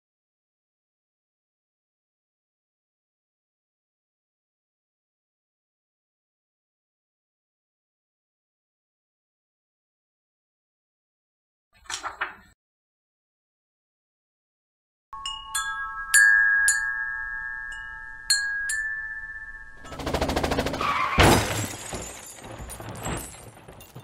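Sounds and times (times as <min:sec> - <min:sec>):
dense rattling buzz: 0:19.7 - 0:21.9.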